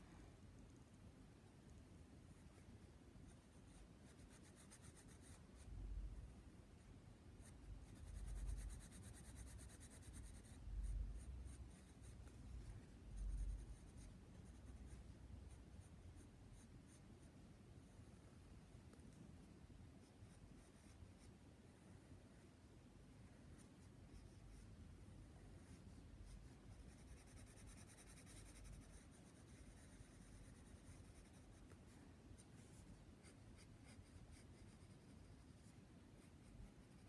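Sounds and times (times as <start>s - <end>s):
pencil scratching on paper: 3.3s - 5.7s, 7.4s - 14.9s, 20.0s - 21.3s, 25.6s - 37.0s.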